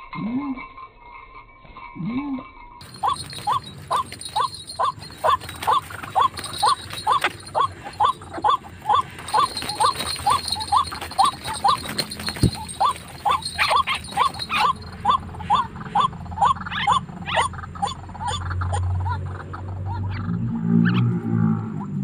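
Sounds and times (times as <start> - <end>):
rustling: 2.8 - 15.5
waterhen calling: 2.8 - 20.2.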